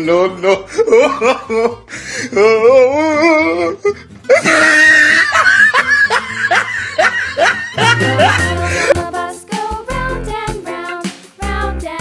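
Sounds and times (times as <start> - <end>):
cartoon laughter: 0.4 - 1.8, 4.3 - 9.0
music: 1.4 - 12.0.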